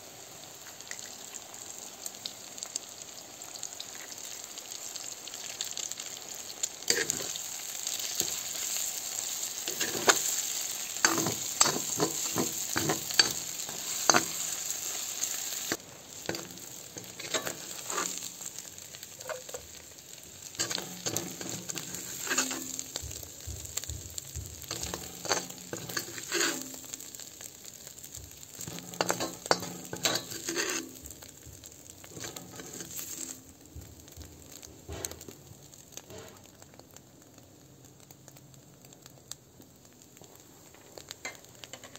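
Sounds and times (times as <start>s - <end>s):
omelet sizzling in wok: 0.0s - 41.9s
metal spoon scraping pan: 6.9s - 7.4s, 9.6s - 18.5s, 19.2s - 19.6s, 20.5s - 23.0s, 24.7s - 27.0s, 28.6s - 31.2s, 32.1s - 33.4s.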